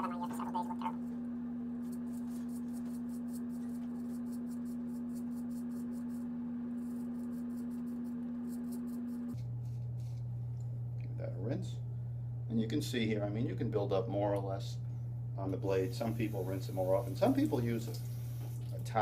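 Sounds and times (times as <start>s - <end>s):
razor scraping stubble: 1.8s - 10.2s.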